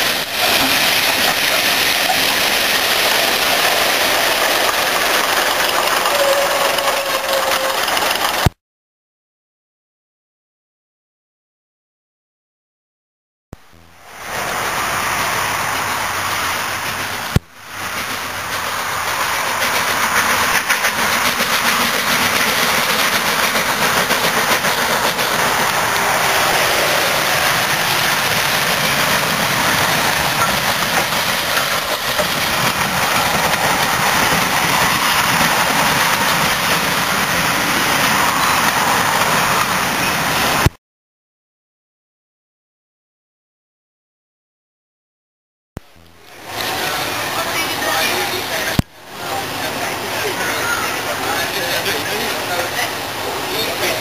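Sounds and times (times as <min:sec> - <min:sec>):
steam locomotive working: 0:00.0 - 0:08.6, 0:13.8 - 0:40.7, 0:45.8 - 0:54.0
train rumble: 0:00.0 - 0:08.6, 0:13.6 - 0:40.7, 0:45.8 - 0:54.0
wheels clicking over rail joints: 0:00.0 - 0:08.6, 0:15.6 - 0:40.7.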